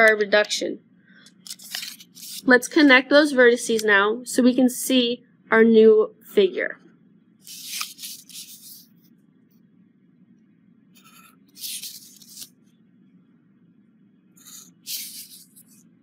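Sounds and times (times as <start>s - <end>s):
felt-tip pen drawing on paper: 14.4s - 15.8s.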